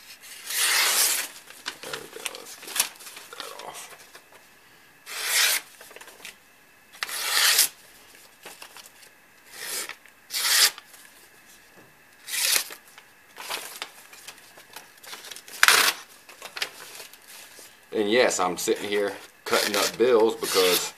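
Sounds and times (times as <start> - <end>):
paper rustling: 0.3 - 4.4, 5.3 - 6.4, 7.0 - 9.1, 12.3 - 17.8.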